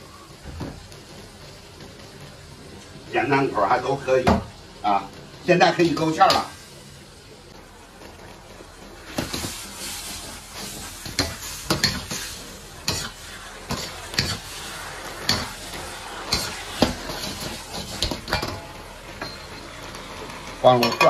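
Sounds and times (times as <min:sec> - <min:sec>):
food sizzling: 0:00.0 - 0:21.0
ladle scraping a wok: 0:09.0 - 0:21.0.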